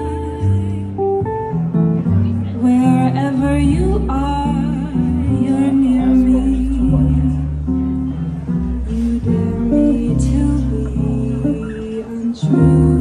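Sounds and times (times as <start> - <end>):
woman singing into a microphone: 0.0 - 1.3, 2.5 - 7.9, 8.8 - 13.0
plucked guitar: 0.0 - 13.0
upright double bass: 0.0 - 13.0.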